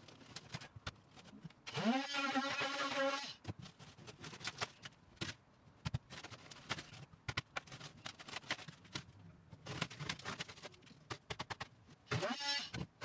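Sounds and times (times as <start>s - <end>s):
hands scraping and rustling: 3.4s - 11.8s.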